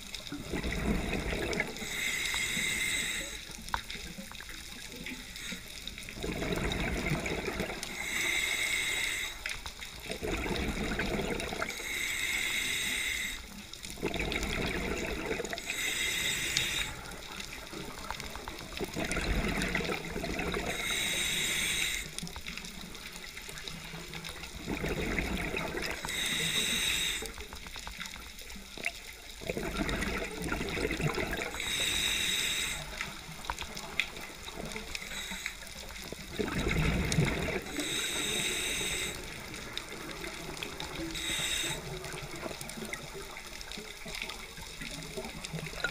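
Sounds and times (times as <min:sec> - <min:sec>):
exhaled bubbles rushing: 0:00.0 - 0:01.9, 0:06.1 - 0:07.9, 0:10.0 - 0:11.8, 0:14.0 - 0:15.7, 0:17.0 - 0:20.8, 0:24.3 - 0:26.1, 0:29.4 - 0:31.6, 0:36.0 - 0:37.9
regulator hissing inhale: 0:01.7 - 0:03.6, 0:05.2 - 0:06.1, 0:07.8 - 0:09.8, 0:11.6 - 0:13.7, 0:15.4 - 0:17.6, 0:20.7 - 0:22.2, 0:26.0 - 0:27.5, 0:31.5 - 0:33.4, 0:34.9 - 0:36.1, 0:37.6 - 0:39.8, 0:40.8 - 0:42.3.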